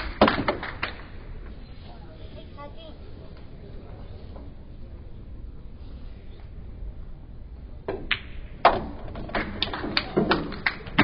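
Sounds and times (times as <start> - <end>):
pool balls clacking: 7.8 - 11.0.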